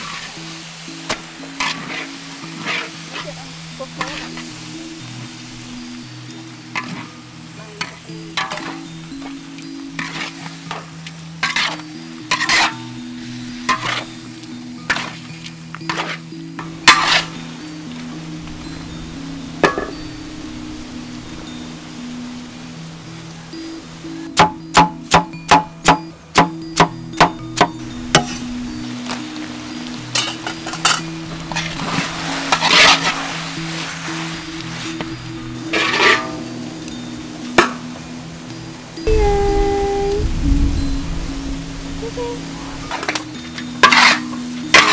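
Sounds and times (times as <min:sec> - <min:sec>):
meat sizzling in a wok: 0:00.0 - 0:39.0, 0:40.8 - 0:44.9
soft background music: 0:00.0 - 0:44.9
spatula scraping a wok: 0:01.5 - 0:03.3, 0:10.0 - 0:12.9, 0:13.5 - 0:14.2, 0:14.9 - 0:17.4, 0:30.1 - 0:36.4, 0:43.1 - 0:44.9.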